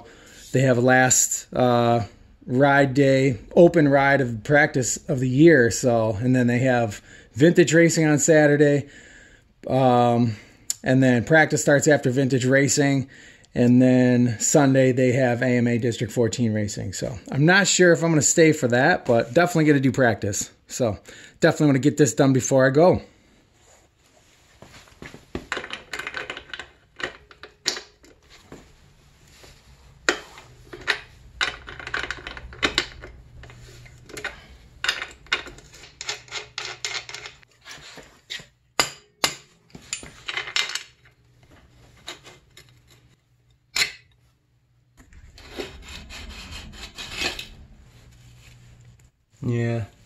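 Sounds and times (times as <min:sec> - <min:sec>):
low steady hum: 0:23.1 - 0:50.0.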